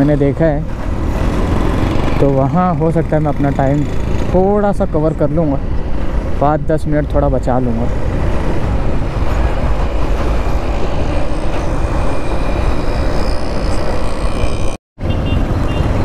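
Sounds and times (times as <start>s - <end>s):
motorcycle engine: 0.0s - 6.4s
road noise: 0.0s - 16.0s.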